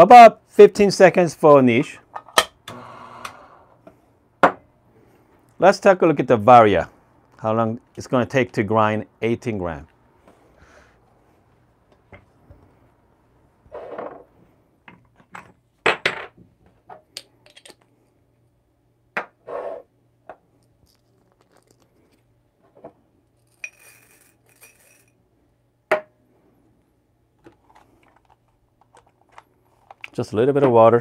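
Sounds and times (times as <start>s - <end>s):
metal parts and tableware clinking: 23.5s - 25.2s.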